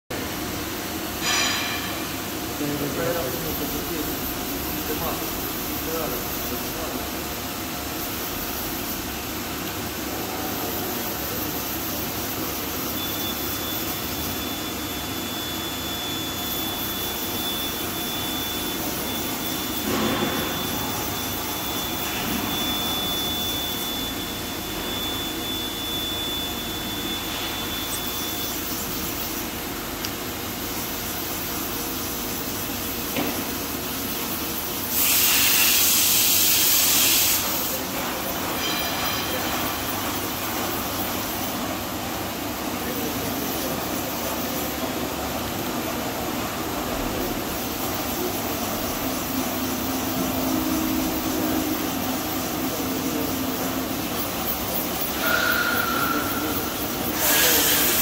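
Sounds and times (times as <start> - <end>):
machining center mechanical hum: 0.1 - 58.0
thin high whine: 1.2 - 58.0
loud hiss: 34.8 - 37.9, 55.1 - 58.0.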